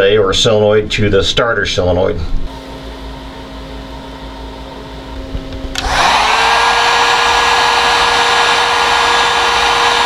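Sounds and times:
fan spinning up whine: 2.3 - 10.0
heat gun blowing: 5.7 - 10.0.

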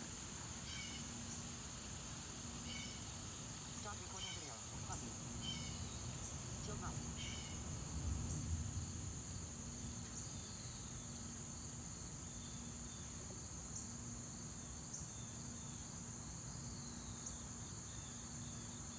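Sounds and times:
insect chorus droning: 0.0 - 18.9.

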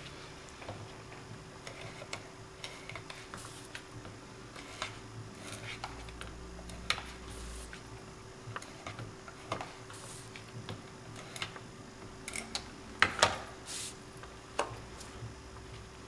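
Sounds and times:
papery hiss: 3.2 - 3.8, 7.2 - 7.8, 9.8 - 10.4, 13.6 - 14.0.

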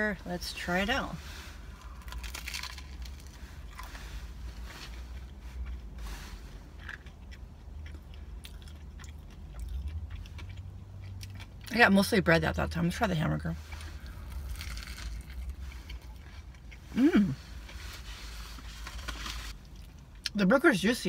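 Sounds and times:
low steady hum: 0.0 - 21.0
person chewing food: 1.7 - 11.7, 13.6 - 20.3.

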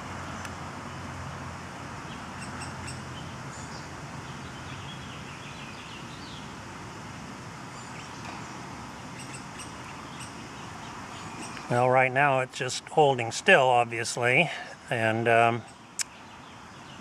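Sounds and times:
steady outdoor hiss: 0.0 - 17.0
faint bird chirps: 7.7 - 11.9.

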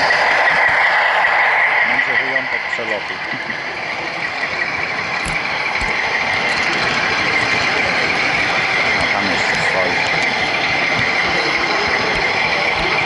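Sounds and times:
wheels on model track: 0.0 - 13.0
model train motor whirring: 4.9 - 13.0.

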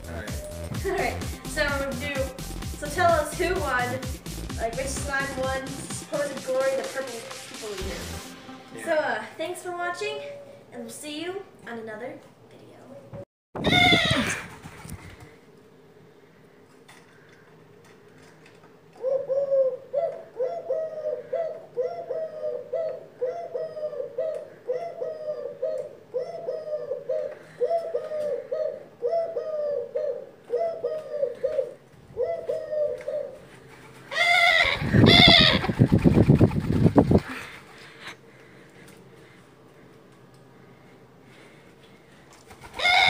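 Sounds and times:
dove cooing: 18.9 - 38.0, 42.4 - 43.0.

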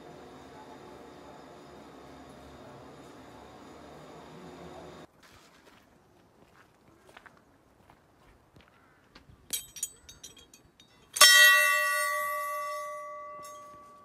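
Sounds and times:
light metallic clinks: 9.5 - 14.0
large temple bell ringing: 11.2 - 14.0.

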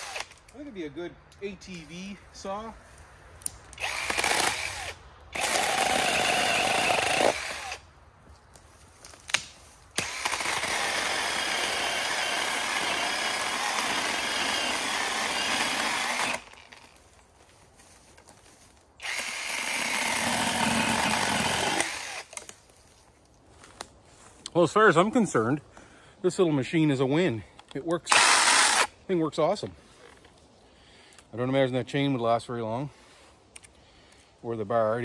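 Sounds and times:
chainsaw cutting log: 0.0 - 0.4, 3.8 - 7.8, 9.3 - 16.9, 19.0 - 22.4, 28.1 - 28.9.

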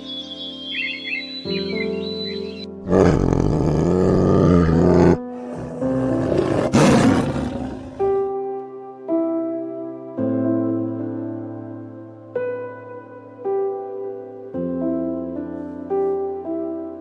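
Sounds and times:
soft piano music: 0.0 - 17.0
tiger roaring: 2.8 - 8.3.

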